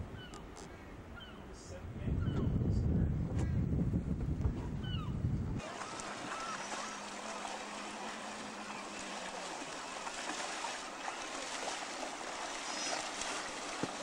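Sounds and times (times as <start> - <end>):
wind on microphone: 0.0 - 5.8
water and small waves: 3.6 - 14.0
outboard motor hum: 4.2 - 14.0.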